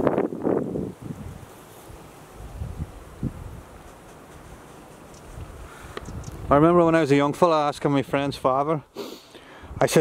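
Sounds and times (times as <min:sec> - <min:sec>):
wind buffeting microphone: 0:00.0 - 0:01.5, 0:02.4 - 0:03.8, 0:05.2 - 0:08.6.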